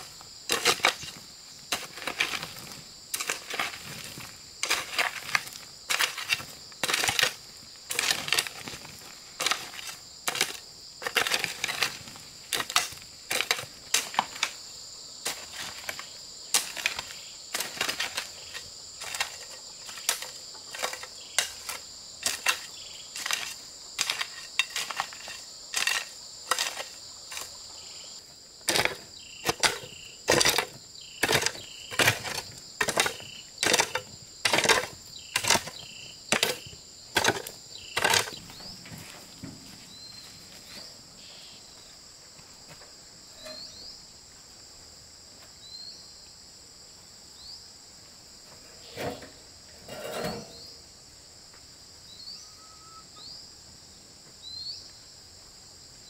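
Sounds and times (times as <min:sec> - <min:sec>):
hoe chopping and scraping dirt: 0:00.0 - 0:14.6, 0:15.2 - 0:39.8, 0:43.4 - 0:43.9, 0:48.5 - 0:50.8
insects droning: 0:00.0 - 0:56.0.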